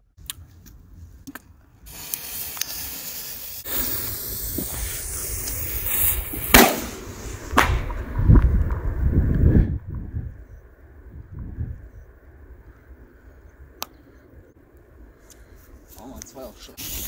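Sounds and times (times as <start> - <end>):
firework hissing: 1.8 - 7.9, 16.4 - 17.0
firework cracks: 1.9 - 8.8
wind on microphone: 3.7 - 13.8.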